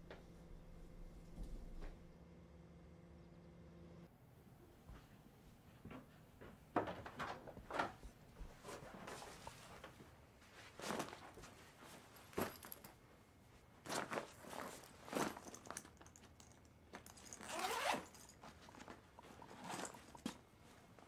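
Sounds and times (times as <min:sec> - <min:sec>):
fabric rustling: 0:08.5 - 0:12.9, 0:13.5 - 0:16.4, 0:17.0 - 0:21.0
zipper pulled: 0:17.1 - 0:20.3.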